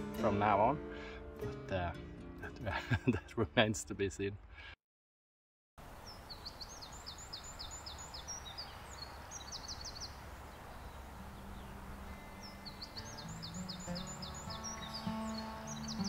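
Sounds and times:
outdoor background noise: 5.8s - 16.0s
bird singing high notes: 10.8s - 16.0s.

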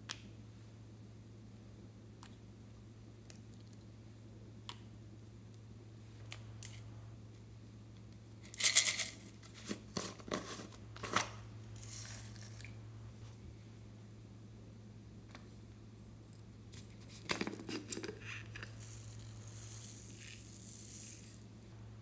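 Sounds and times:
plastic cap grating rattle: 8.5s - 12.7s, 17.2s - 21.4s.

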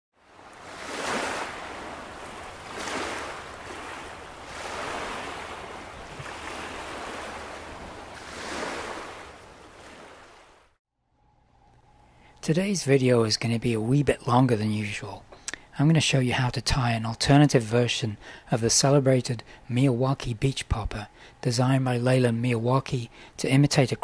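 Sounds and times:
small waves washing on shore: 0.2s - 10.8s.

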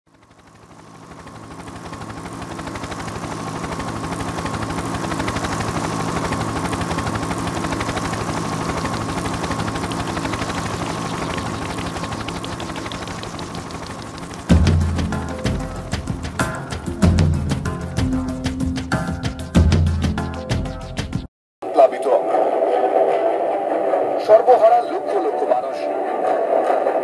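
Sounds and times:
pulsing mechanical drone: 0.1s - 19.0s
low hum: 0.2s - 18.6s.

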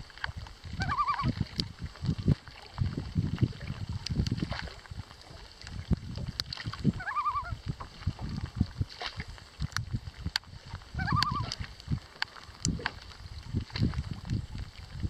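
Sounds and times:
water lapping and sloshing: 0.0s - 15.0s
loon tremolo call: 0.8s - 1.3s, 7.0s - 7.6s, 11.0s - 11.5s.

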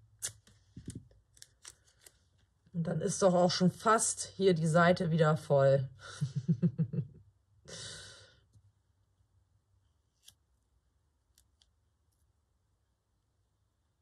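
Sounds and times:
woman sighing: 7.7s - 8.4s
faint small clicks: 11.3s - 12.3s.

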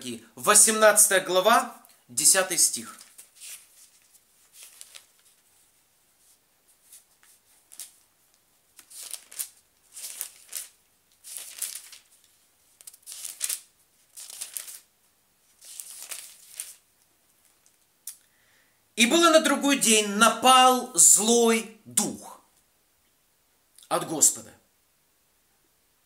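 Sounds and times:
book pages rustling: 2.9s - 17.8s.

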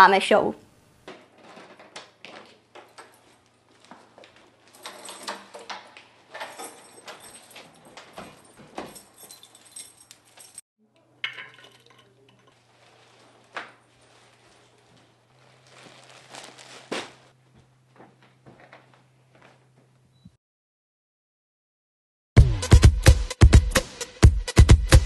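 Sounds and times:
front door opening: 1.1s - 10.6s
objects knocking and clinking: 1.1s - 10.6s, 11.2s - 12.7s
keys jangling: 2.4s - 10.6s.

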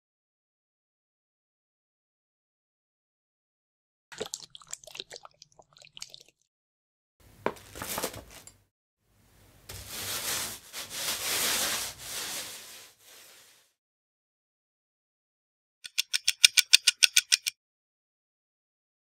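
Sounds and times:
paint pouring into a tray: 9.7s - 13.7s
paint roller hissing on floor: 9.7s - 13.8s.

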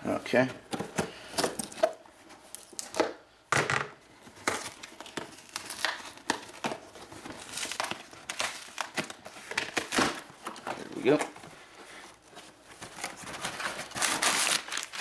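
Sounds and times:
cardboard flaps crinkling and rustling: 4.2s - 15.0s.

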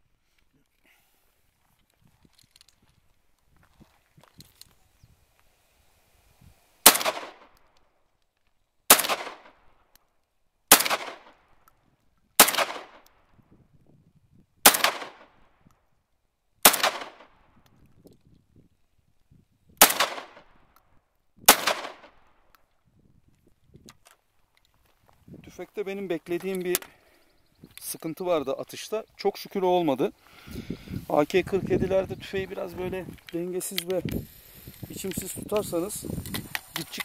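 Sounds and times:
shotgun shots with echo: 6.8s - 7.5s, 8.9s - 9.6s, 10.7s - 11.3s, 12.4s - 13.0s, 14.6s - 15.3s, 16.6s - 17.3s, 19.8s - 20.5s, 21.5s - 22.2s.

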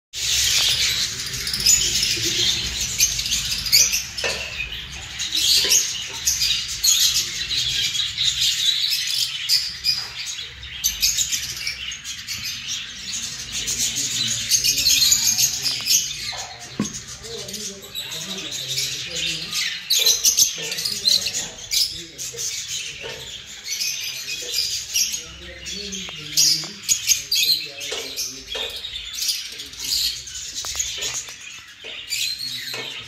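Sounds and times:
lovebirds chattering: 0.2s - 33.0s.

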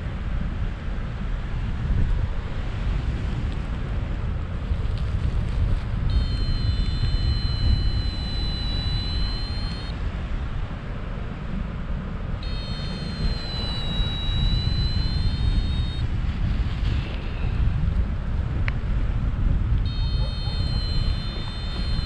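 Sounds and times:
wind rushing over microphone: 0.0s - 22.0s
steady high tone: 6.1s - 9.9s, 12.4s - 16.0s, 19.9s - 22.0s.

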